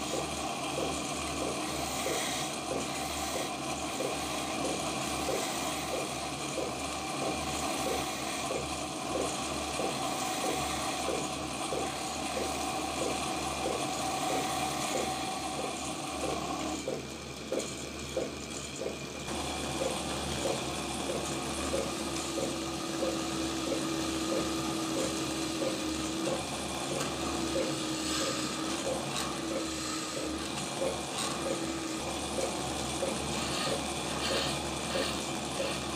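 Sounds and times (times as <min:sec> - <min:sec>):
wood lathe chisel scraping: 0:00.0 - 0:16.8, 0:27.0 - 0:35.9
tool boring steady tone: 0:00.0 - 0:35.9.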